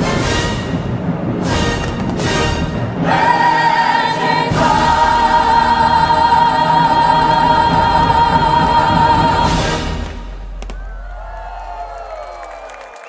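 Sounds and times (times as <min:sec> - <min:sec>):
sharp orchestral hits: 0:00.0 - 0:10.6
choir with orchestra chord: 0:02.3 - 0:10.3.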